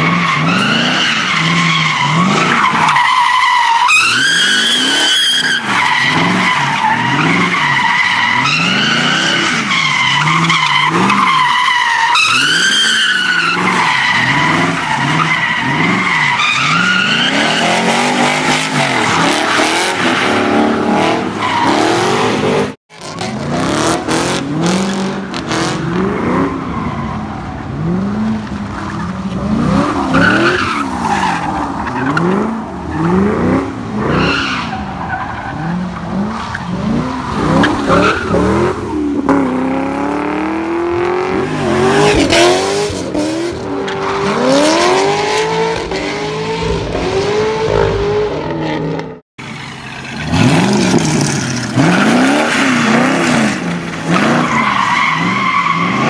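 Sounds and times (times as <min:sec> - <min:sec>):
car engine revving: 0:31.6 - 0:56.0.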